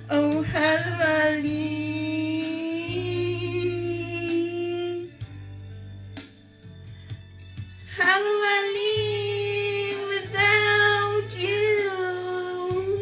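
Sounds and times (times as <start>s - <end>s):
woman singing a long note: 0.1s - 5.2s.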